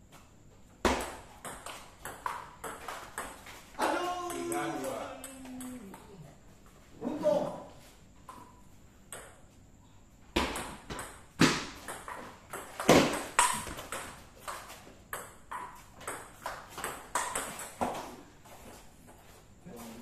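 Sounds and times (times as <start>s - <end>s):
table tennis ball hits: 0.8s - 6.1s, 10.3s - 18.2s.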